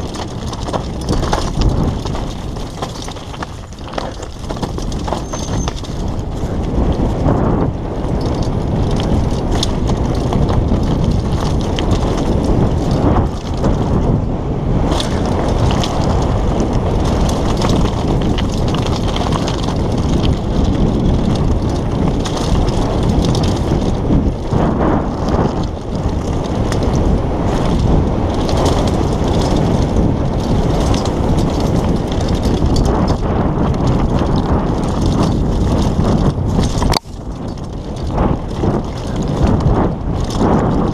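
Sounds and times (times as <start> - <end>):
tyres crunching over stones: 0.0 - 14.1, 14.8 - 40.9
bike clattering over bumps: 0.0 - 40.9
wind buffeting microphone: 0.0 - 40.9.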